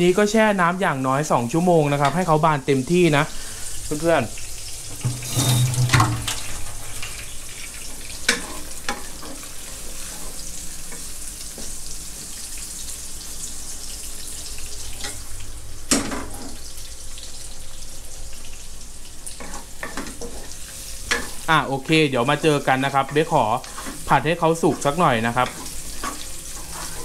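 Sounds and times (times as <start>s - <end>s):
mushrooms sizzling in a wok: 0.0s - 27.0s.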